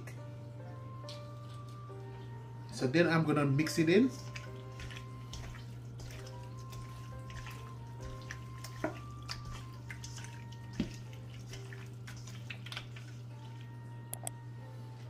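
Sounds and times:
quiet background music: 0:00.0 - 0:15.0
hands squelching meat in marinade: 0:03.8 - 0:13.9.

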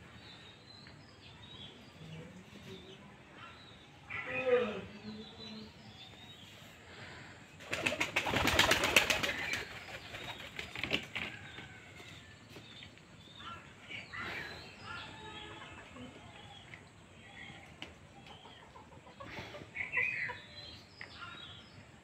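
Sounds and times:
bird wings flapping: 0:07.6 - 0:11.4.

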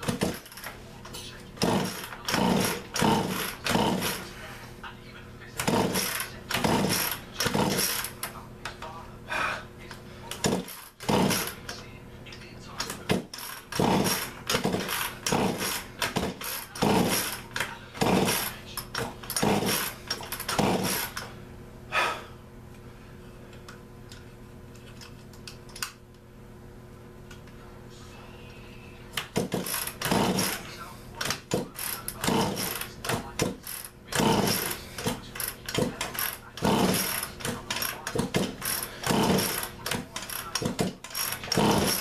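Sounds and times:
chainsaw starter cord pulls: 0:00.0 - 0:00.7, 0:01.6 - 0:04.2, 0:05.6 - 0:08.3, 0:10.4 - 0:11.6, 0:12.8 - 0:21.3, 0:29.4 - 0:42.0.

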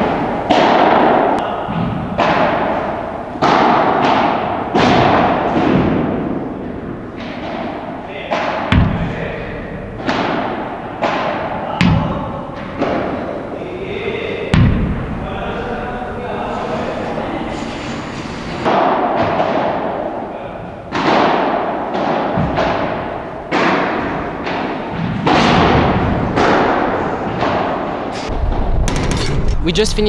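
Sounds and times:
padel balls struck by rackets: 0:00.0 - 0:09.1, 0:09.9 - 0:13.5, 0:14.4 - 0:15.2, 0:18.6 - 0:20.2, 0:20.9 - 0:28.1.

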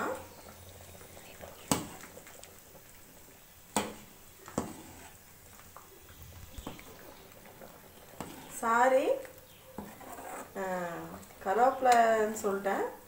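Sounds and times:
metal ladle stirring curry: 0:06.6 - 0:11.4.

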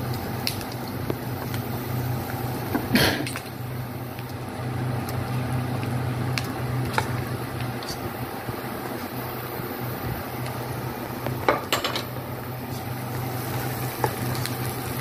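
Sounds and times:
food frying in oil: 0:00.0 - 0:15.0
steady low hum: 0:00.0 - 0:15.0.

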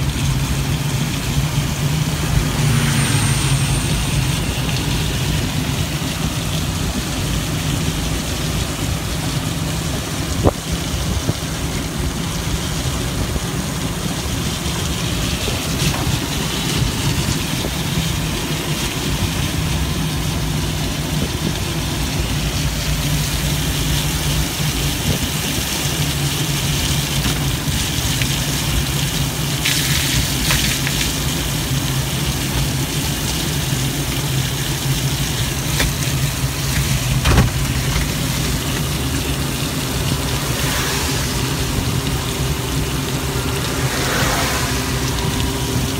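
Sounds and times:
rain and wet road hiss: 0:00.0 - 0:45.9
hiss of spray: 0:37.1 - 0:45.9.

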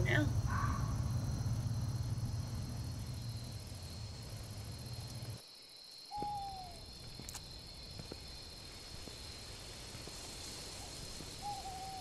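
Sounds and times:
low rumble: 0:00.0 - 0:05.4
insects chirring: 0:00.0 - 0:12.0
owl hoot: 0:06.1 - 0:06.8, 0:10.8 - 0:12.0.

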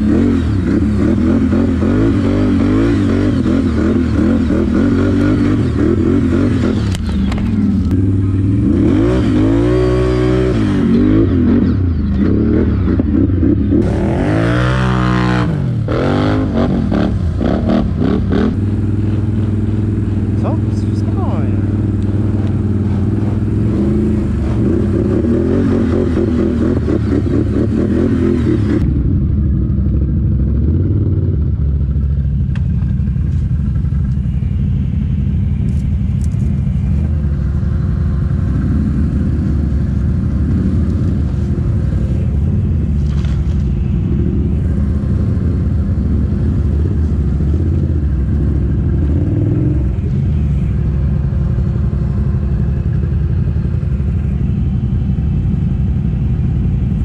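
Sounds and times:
atv engines revving: 0:00.0 - 0:57.0.

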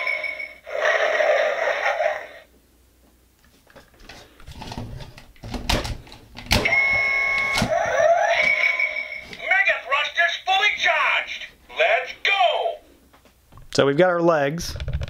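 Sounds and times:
toy electronic tones: 0:06.6 - 0:09.4.

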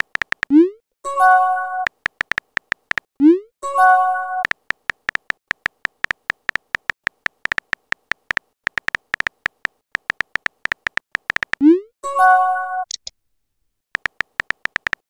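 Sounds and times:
phone keyboard typing clicks: 0:00.0 - 0:00.5, 0:01.8 - 0:03.1, 0:04.4 - 0:11.6, 0:14.0 - 0:15.0.

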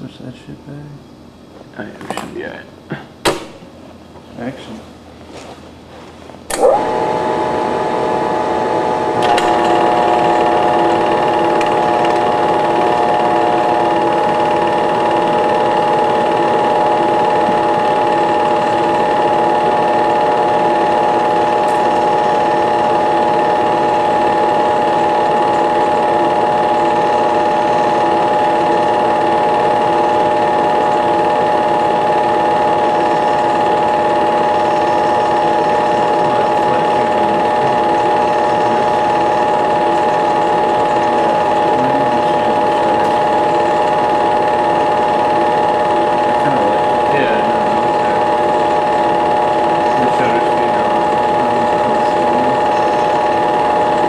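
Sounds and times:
projector switch click: 0:06.5 - 0:06.9, 0:09.2 - 0:18.8
film projector running: 0:06.5 - 0:54.0.

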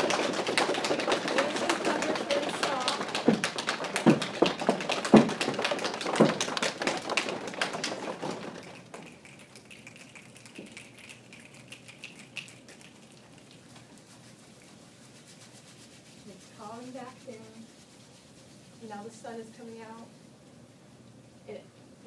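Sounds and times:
stomping thumps: 0:00.0 - 0:08.8
leg pats: 0:00.0 - 0:09.1
hand rubbing: 0:00.0 - 0:19.3.

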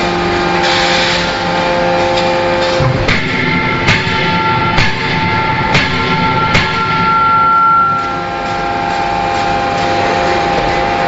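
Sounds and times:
forging hammer hum: 0:01.3 - 0:11.0
sharp knocks: 0:02.8 - 0:07.8.

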